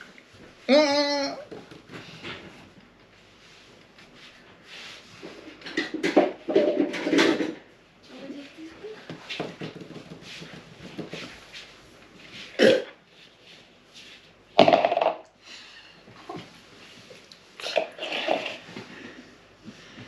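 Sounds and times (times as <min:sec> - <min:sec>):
man gagging and retching: 0:17.6 - 0:18.6
man spitting into plastic bowl: 0:17.6 - 0:18.6.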